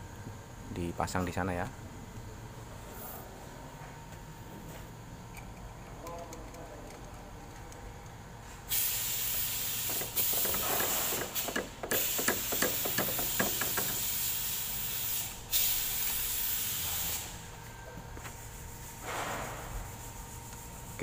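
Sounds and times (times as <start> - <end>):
pressurised hissing spray: 8.7 - 17.3.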